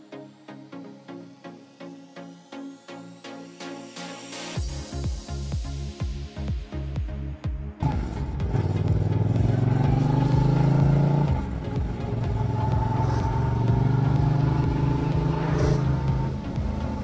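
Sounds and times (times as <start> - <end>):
motorcycle engine accelerating: 7.8 - 17.0.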